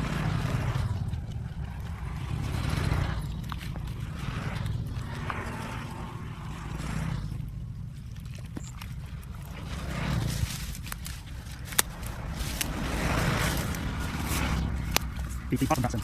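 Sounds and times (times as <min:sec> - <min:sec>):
rustling in wet weeds and water: 0:00.0 - 0:16.0
steady low rumble: 0:00.0 - 0:16.0.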